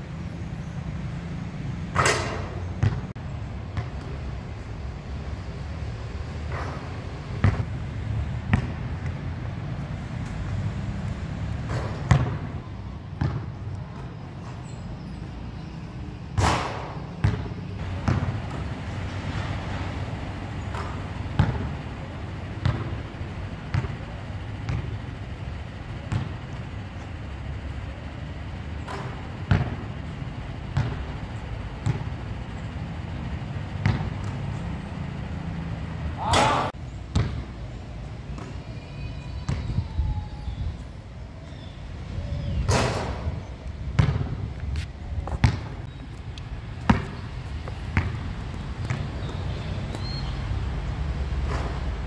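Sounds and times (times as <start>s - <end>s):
basketball striking backboard and rim: 1.9s - 3.1s, 6.5s - 7.7s, 8.5s - 8.8s, 11.6s - 12.6s, 13.2s - 13.5s, 16.4s - 18.6s, 20.7s - 21.7s, 23.7s - 24.0s, 24.7s - 24.9s, 26.1s - 26.3s, 28.9s - 29.8s, 31.8s - 32.1s, 33.8s - 34.4s, 36.2s - 37.5s, 44.0s - 44.4s, 45.3s - 45.8s, 46.9s - 47.2s
basketball bouncing: 2.0s - 3.1s, 7.4s - 7.7s, 8.4s - 9.2s, 11.6s - 12.6s, 13.2s - 14.5s, 16.4s - 18.7s, 20.7s - 21.7s, 22.6s - 23.0s, 23.7s - 24.0s, 24.6s - 24.9s, 26.0s - 26.6s, 28.9s - 29.8s, 30.7s - 32.1s, 33.8s - 34.6s, 37.1s - 37.5s, 43.9s - 44.4s, 45.2s - 45.9s, 46.8s - 48.2s, 48.8s - 50.2s.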